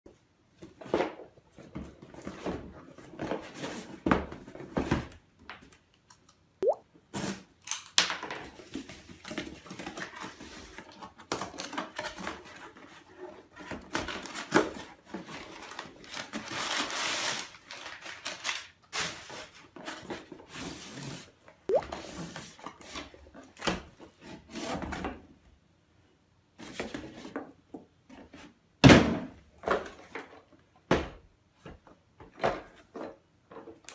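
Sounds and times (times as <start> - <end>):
cardboard rustling and scraping: 0.6 - 5.2.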